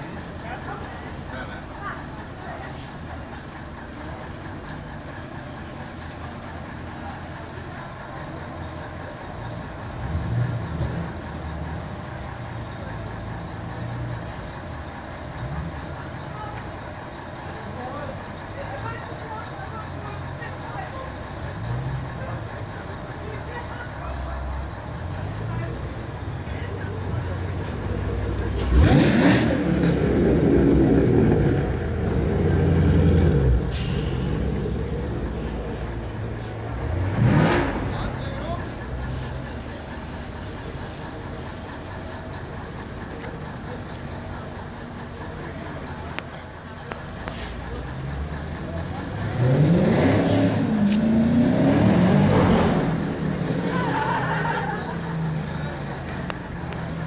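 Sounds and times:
truck engine idling and revving: 0:00.0 - 0:57.0
car engine revving: 0:28.1 - 0:33.7, 0:36.6 - 0:38.8, 0:47.8 - 0:57.0.

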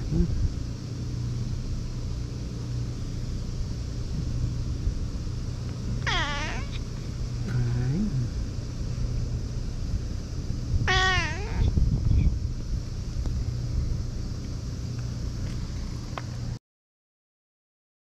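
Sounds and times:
steady low hum: 0:00.0 - 0:16.6
cat meowing: 0:06.0 - 0:06.8, 0:10.9 - 0:11.8.

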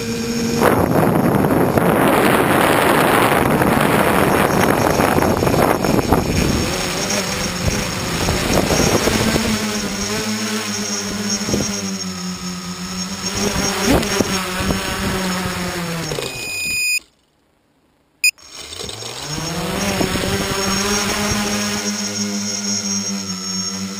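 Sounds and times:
wind rushing over microphone: 0:00.0 - 0:12.0, 0:12.6 - 0:16.1, 0:19.4 - 0:21.9
drone propellers buzzing: 0:00.0 - 0:17.0, 0:18.2 - 0:23.9.

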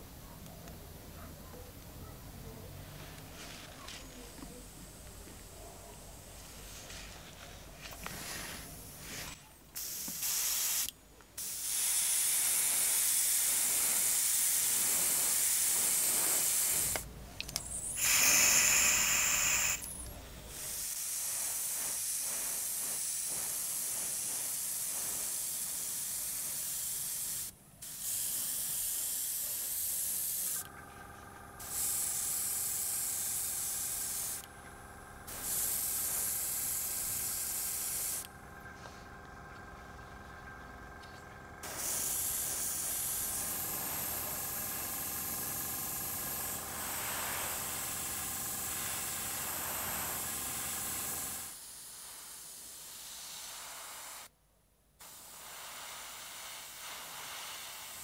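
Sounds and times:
steady multi-tone hum: 0:00.0 - 0:53.0
airbrush spraying hiss: 0:03.0 - 0:17.1, 0:17.7 - 0:30.6, 0:31.6 - 0:34.5, 0:35.3 - 0:38.3, 0:41.6 - 0:54.3, 0:55.0 - 0:58.0.

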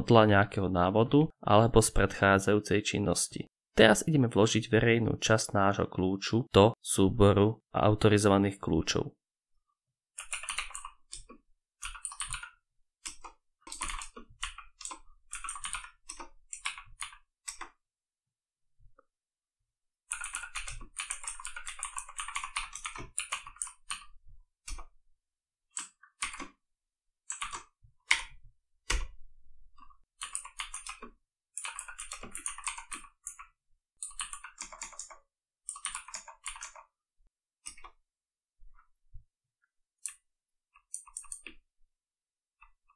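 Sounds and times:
computer keyboard typing: 0:10.2 - 0:17.8, 0:20.1 - 0:24.9, 0:25.8 - 0:26.6, 0:27.3 - 0:29.1, 0:30.2 - 0:36.9, 0:37.6 - 0:38.0, 0:40.8 - 0:41.6.

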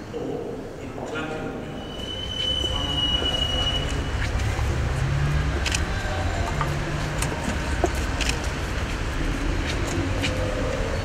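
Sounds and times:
street traffic: 0:01.4 - 0:11.0
motor vehicle rumbling: 0:01.8 - 0:11.0
engine hum: 0:02.2 - 0:11.0.

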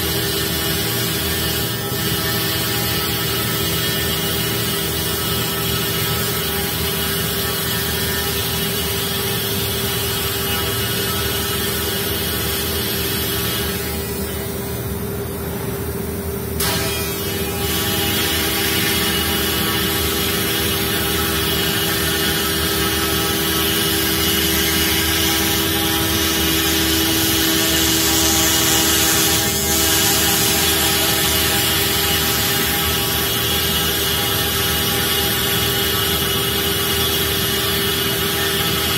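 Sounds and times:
cnc router spindle whining: 0:00.0 - 0:15.0, 0:16.6 - 0:38.9
cutter hissing through wood: 0:16.6 - 0:38.9.

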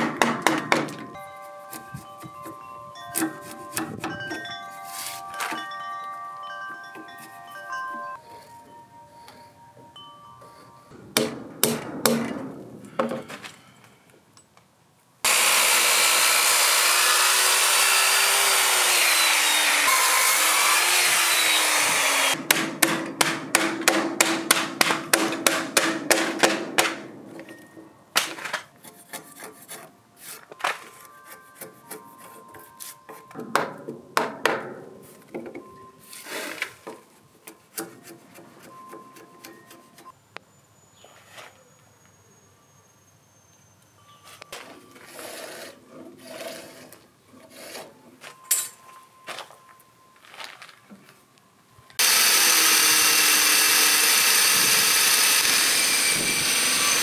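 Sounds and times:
power saw cutting wood: 0:15.2 - 0:22.7, 0:52.0 - 0:57.0
claw hammer knocking wood: 0:22.4 - 0:27.0.

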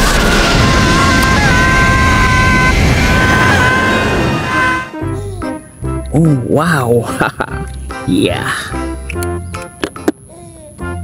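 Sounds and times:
rocket engines roaring: 0:00.0 - 0:05.0.

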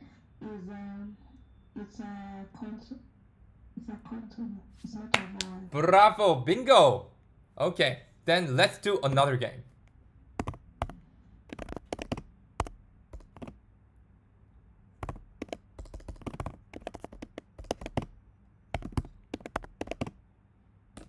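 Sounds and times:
keyboard key clicks: 0:10.4 - 0:13.6, 0:15.0 - 0:18.2, 0:18.8 - 0:20.1.

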